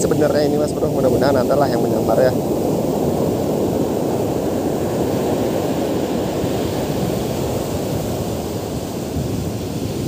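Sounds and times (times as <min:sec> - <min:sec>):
surf breaking on beach: 0:00.0 - 0:10.0
wind buffeting microphone: 0:00.0 - 0:10.0.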